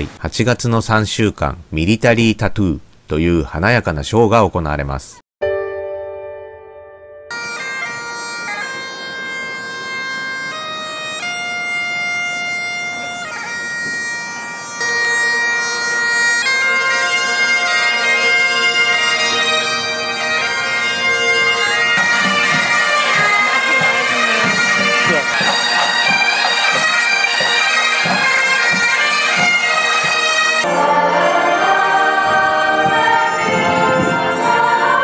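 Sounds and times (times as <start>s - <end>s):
bagpipes playing slow tune: 7.3s - 35.0s.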